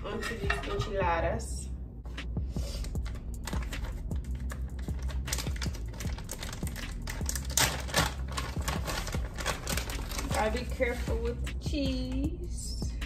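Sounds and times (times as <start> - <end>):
background music: 0.0 - 13.0
plastic bag crinkling: 3.4 - 11.3.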